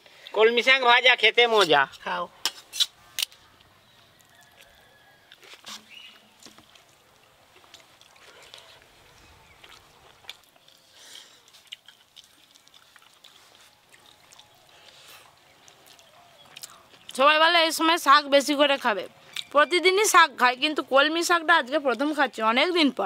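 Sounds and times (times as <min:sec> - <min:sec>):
people eating by hand: 0:01.9 - 0:20.1.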